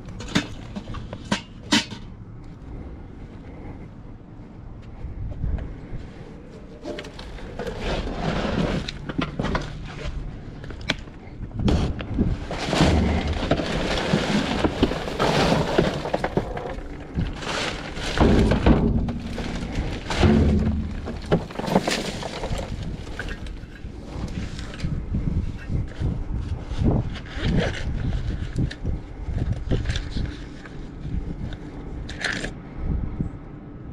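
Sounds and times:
junk rustling and clattering: 0.0s - 2.2s, 5.4s - 31.5s
heavy thuds: 11.6s - 23.2s.

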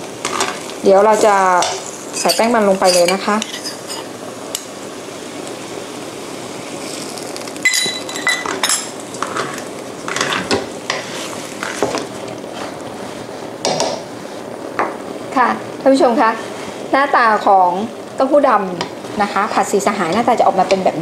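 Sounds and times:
low sizzle: 0.0s - 21.0s
spatula scraping a wok: 1.1s - 4.2s, 9.2s - 12.8s.

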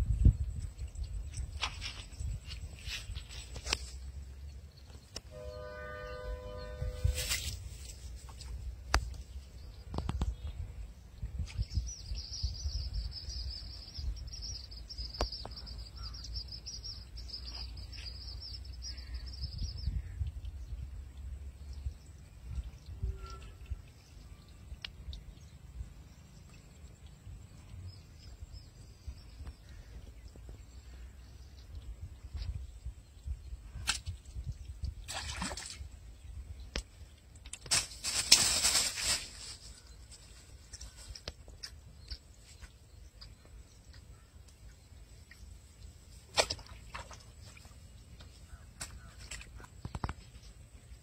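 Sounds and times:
low wind rumble: 0.0s - 2.8s
faint rustles in grass: 0.8s - 4.2s, 6.7s - 10.7s, 37.6s - 42.9s
faint high bird chirps: 22.5s - 25.4s, 40.7s - 45.5s.

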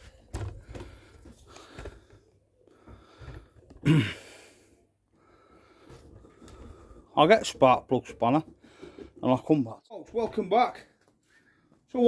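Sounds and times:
man sighing: 3.8s - 4.7s.

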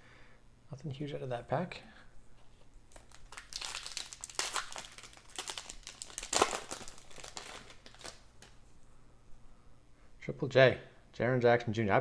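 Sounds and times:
foil wrapper crinkling and tearing: 2.9s - 8.6s.

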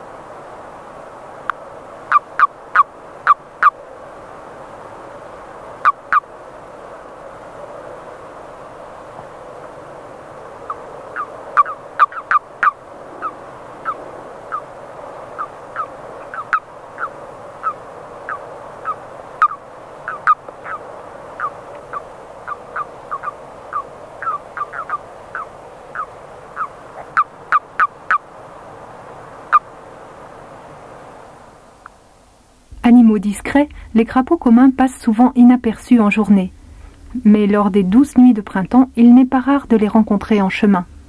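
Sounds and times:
murmur of distant toad calls: 0.0s - 32.7s
toads croaking: 2.0s - 3.9s, 5.7s - 6.4s, 10.5s - 28.4s, 29.4s - 29.8s.

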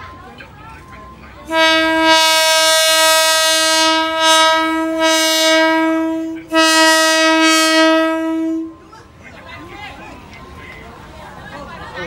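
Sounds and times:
train horn blast: 1.5s - 8.9s.

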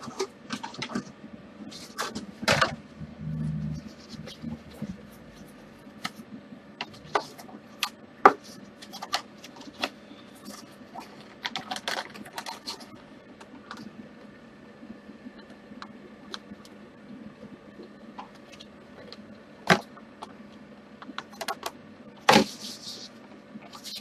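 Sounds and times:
paper crackling and scraping: 1.7s - 2.6s, 8.4s - 13.0s, 22.3s - 24.0s.

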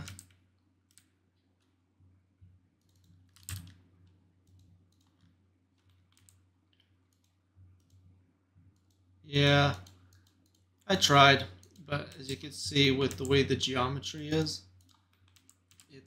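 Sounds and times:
keyboard and mouse clicks: 0.0s - 1.8s, 2.8s - 8.0s, 9.7s - 10.8s, 14.8s - 15.9s.

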